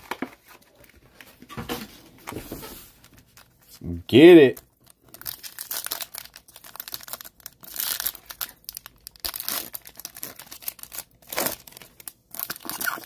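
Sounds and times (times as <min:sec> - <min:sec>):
foil wrapper tearing and crinkling: 0:03.0 - 0:13.0.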